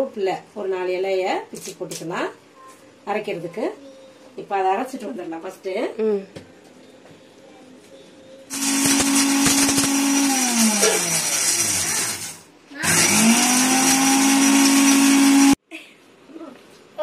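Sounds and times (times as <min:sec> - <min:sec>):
mixer grinder motor whining: 0:08.5 - 0:15.6.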